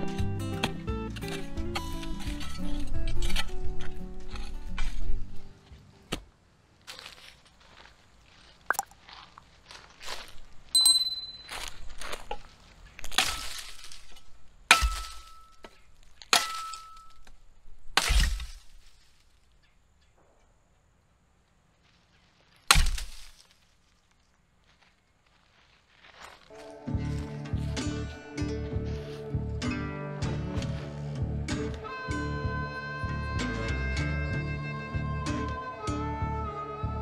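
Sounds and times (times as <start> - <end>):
shovel scraping in fire pit: 0.5 - 5.5, 12.2 - 17.3
shovel chopping branch: 13.0 - 19.0, 22.7 - 23.4.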